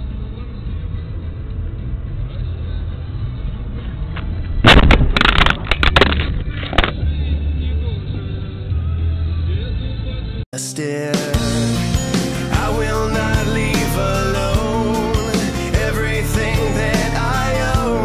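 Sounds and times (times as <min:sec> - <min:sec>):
car engine and road rumble: 0:00.0 - 0:10.4.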